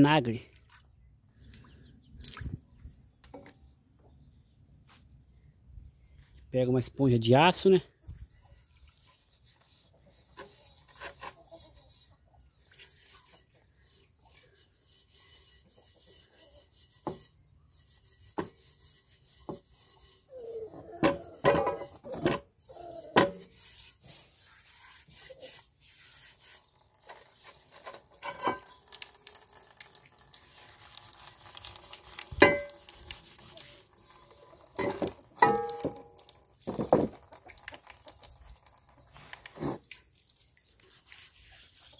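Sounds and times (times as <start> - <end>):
iron pots knocking and ringing: 21.0 - 22.0, 28.2 - 28.8, 32.4 - 32.8, 34.8 - 36.2.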